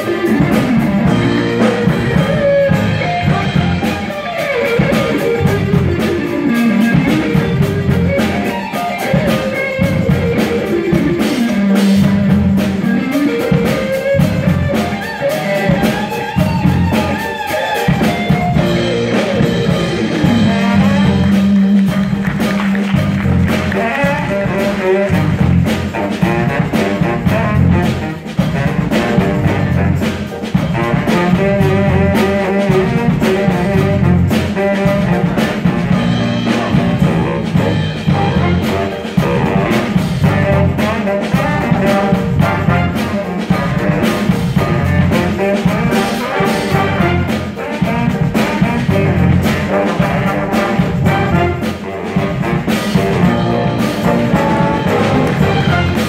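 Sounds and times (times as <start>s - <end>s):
baritone saxophone solo: 0.0s - 56.0s
drum beat: 0.0s - 56.0s
jazz band playing: 0.0s - 56.0s.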